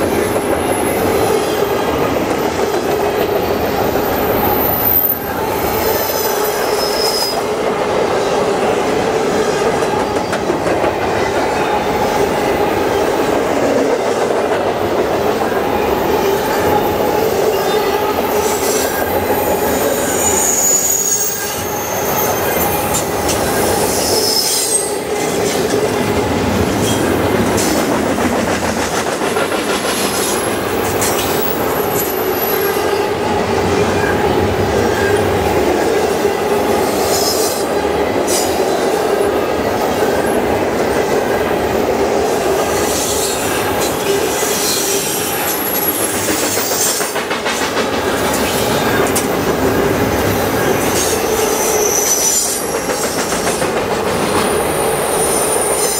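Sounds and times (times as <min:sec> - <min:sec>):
train wheels on rails: 0:00.0 - 0:55.9
high-pitched wheel squeals: 0:17.5 - 0:25.0.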